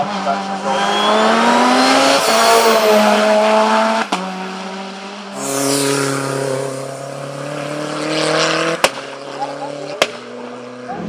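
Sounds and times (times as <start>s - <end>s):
race car engine accelerating: 0.0s - 11.0s
race car engine high note: 0.5s - 4.2s.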